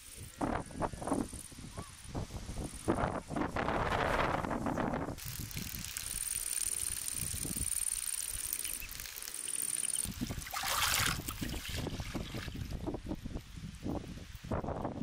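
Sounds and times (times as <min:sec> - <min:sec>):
wind rumbling on microphone: 0:00.0 - 0:06.2, 0:06.9 - 0:07.8, 0:10.0 - 0:15.0
water trickling into trough: 0:05.2 - 0:12.8
hand splashing in water: 0:10.4 - 0:12.5.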